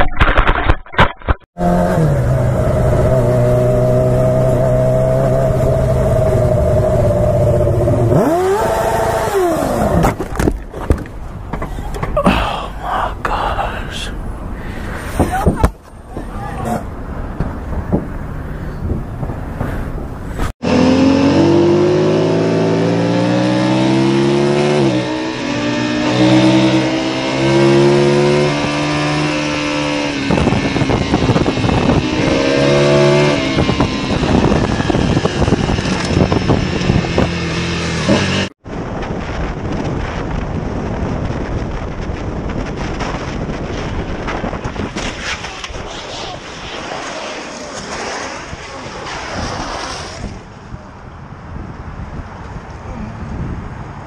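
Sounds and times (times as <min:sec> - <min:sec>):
wind and road noise: 0:00.0 - 0:54.0
motorcycle engine revving: 0:01.6 - 0:10.1, 0:20.6 - 0:38.6.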